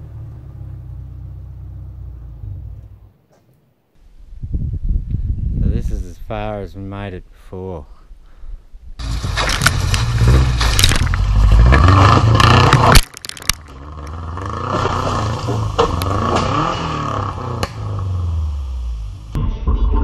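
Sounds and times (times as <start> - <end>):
car engine revving: 9.0 - 13.0, 13.6 - 19.4
vehicle clattering and scraping knocks: 9.0 - 17.9.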